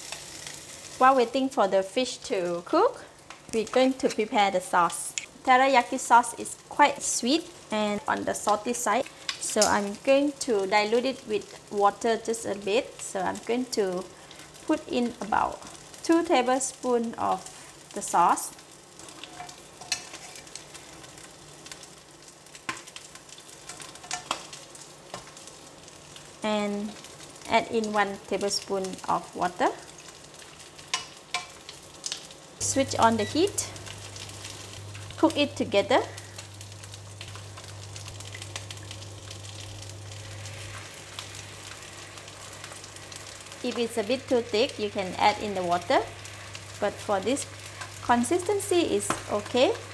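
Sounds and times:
fish sizzling under a lid: 0.0s - 49.9s
spatula stirring: 18.9s - 21.9s, 22.6s - 25.4s.

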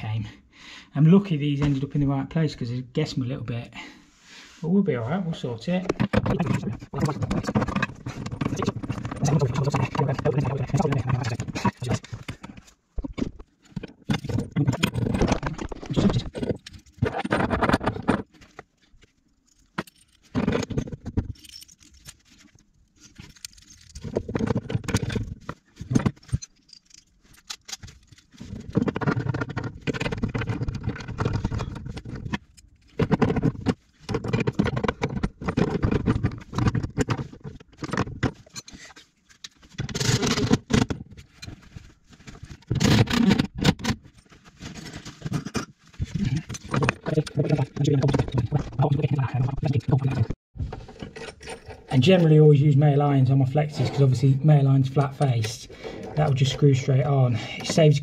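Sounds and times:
metal fittings and tools clinking: 18.3s - 33.4s.

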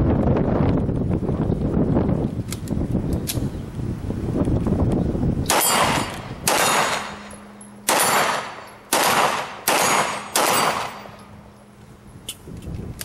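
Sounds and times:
pistol shots with echo: 5.5s - 11.3s.

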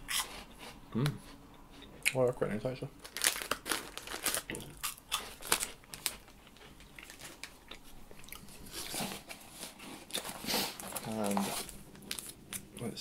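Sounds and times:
plastic wrapper crinkling and tearing: 3.0s - 7.8s, 8.8s - 12.4s.

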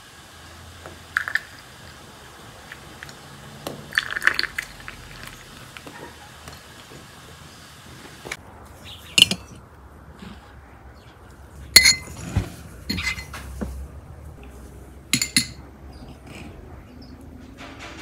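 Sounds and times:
glasses and dishes clinking: 11.8s - 12.3s, 12.9s - 13.4s, 15.1s - 15.6s.

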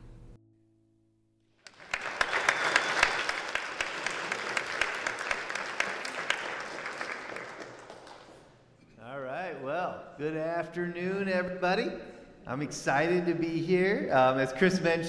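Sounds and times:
congregation applauding: 1.6s - 8.6s.

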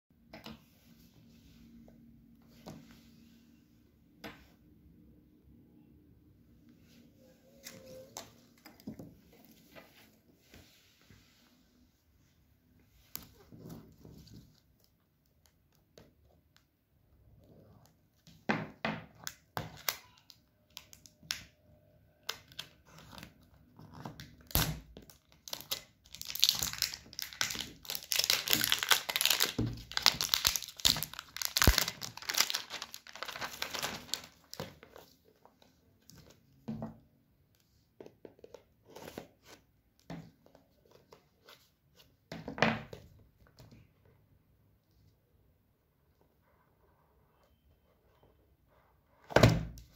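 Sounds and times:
plastic wrap crackling and tearing: 24.2s - 35.1s.

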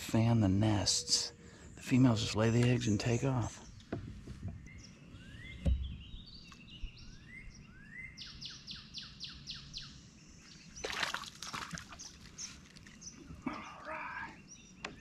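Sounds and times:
songbirds singing: 0.0s - 15.0s
dull thump: 5.6s - 6.1s.

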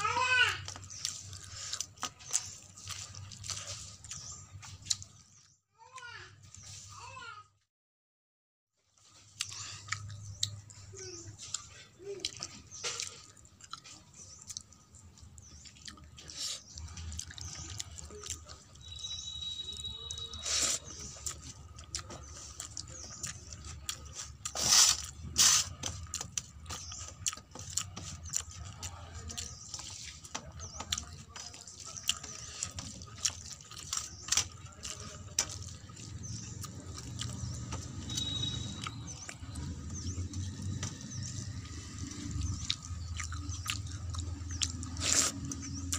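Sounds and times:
fingers squelching wet rice: 9.3s - 45.9s
drips: 25.1s - 45.9s.

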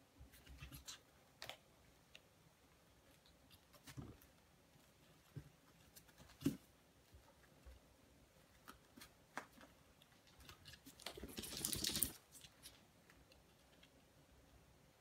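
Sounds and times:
puppies tapping and scuffling: 8.5s - 12.7s.

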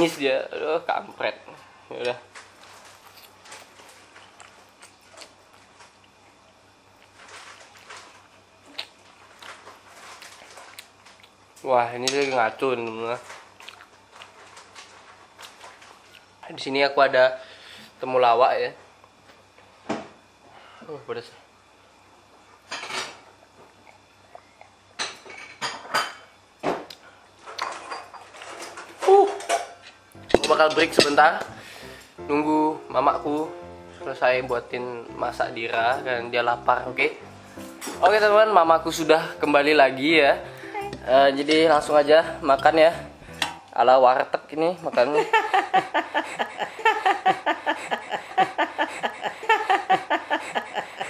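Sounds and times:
woman laughing hard: 45.1s - 51.0s.

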